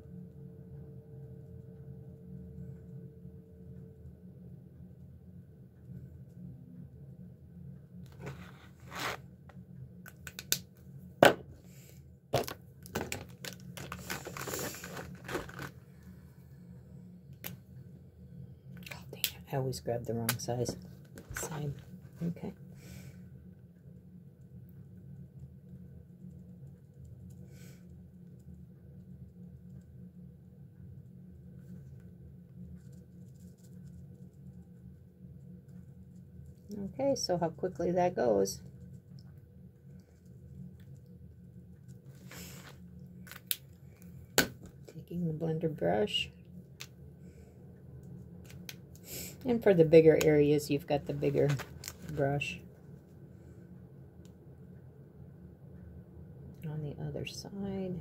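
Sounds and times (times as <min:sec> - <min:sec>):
steady low hum: 0:00.0 - 0:58.0
marker scratching on foil paper: 0:08.2 - 0:09.2
rustling: 0:13.0 - 0:16.1.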